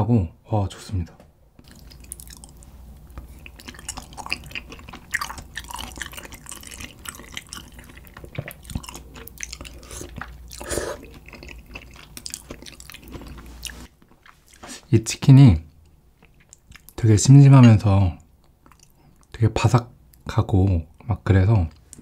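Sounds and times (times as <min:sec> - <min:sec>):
close chewing mouth sounds: 0:01.6 - 0:14.8, 0:15.7 - 0:17.0, 0:18.2 - 0:19.4.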